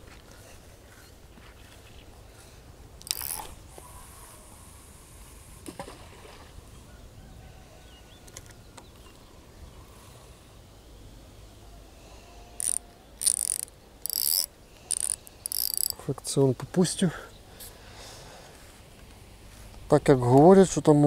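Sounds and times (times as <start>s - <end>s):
reel click: 3.0s - 3.5s, 12.6s - 16.0s.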